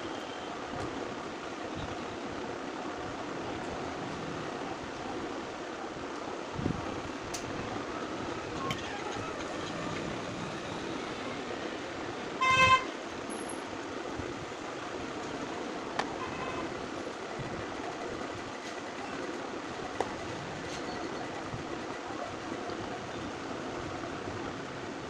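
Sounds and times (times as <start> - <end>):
steady background noise: 0.0 - 25.0
vehicle horn toot: 12.4 - 12.9, 16.2 - 16.7.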